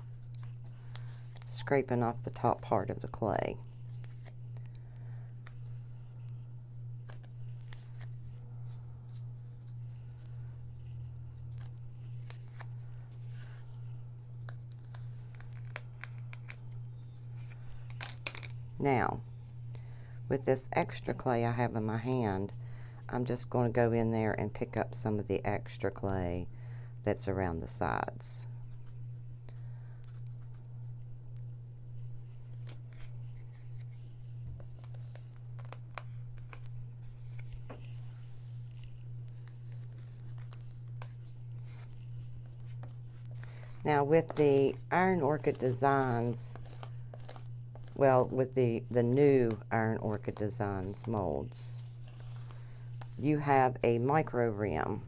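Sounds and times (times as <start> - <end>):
steady low hum: 0.0 - 55.0
scraper scraping clay: 32.2 - 54.0.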